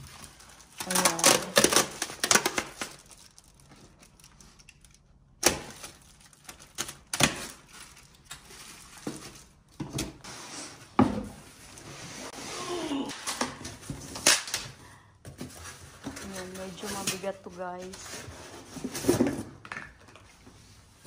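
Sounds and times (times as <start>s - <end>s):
cardboard rustling and scraping: 15.3s - 19.6s.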